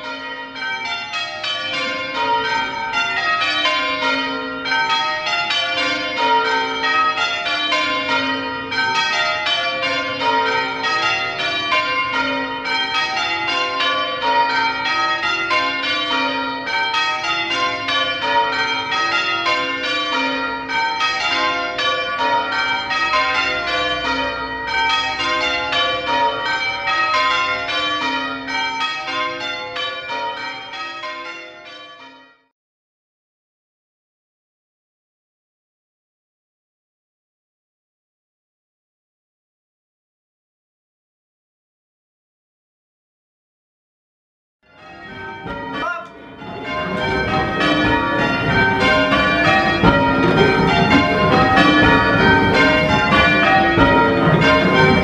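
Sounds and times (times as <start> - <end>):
church bells ringing: 0.0 - 32.5, 44.7 - 55.0.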